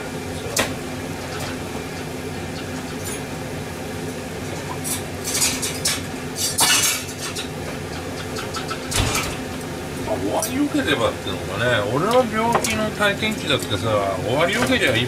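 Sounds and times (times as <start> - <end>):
steady low hum: 0.0 - 15.0
dishes and utensils clattering: 4.6 - 7.5.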